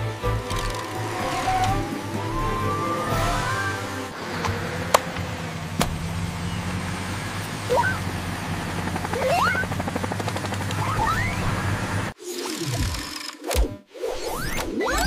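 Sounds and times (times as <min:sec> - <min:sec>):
cartoon helicopter rotor whirring: 0:00.2 - 0:04.8, 0:08.8 - 0:13.6
sharp clicks: 0:00.4 - 0:01.8
short rising whistles: 0:00.6 - 0:04.2.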